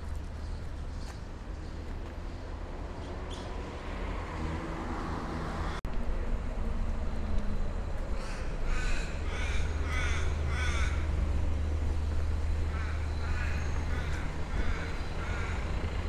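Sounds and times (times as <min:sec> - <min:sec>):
low street rumble: 0:00.0 - 0:16.0
crow cawing: 0:08.2 - 0:11.1, 0:12.7 - 0:15.7.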